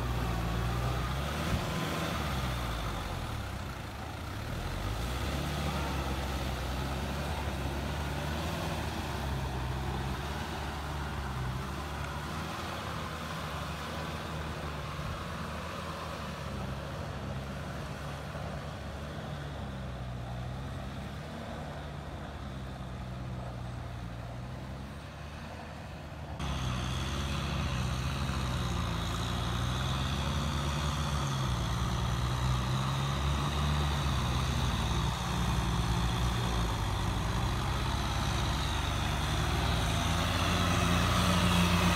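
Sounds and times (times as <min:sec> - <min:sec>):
tractor diesel engines running: 0:00.0 - 0:41.9.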